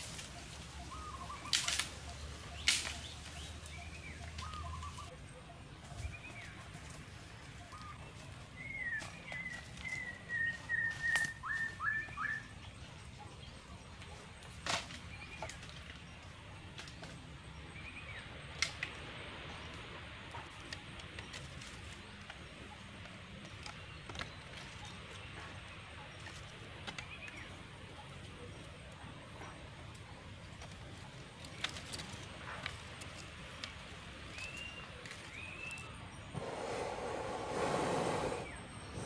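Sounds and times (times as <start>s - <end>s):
sticks cracking: 1.4s - 2.0s, 2.6s - 3.1s
bird whistling and chirping: 8.6s - 12.5s.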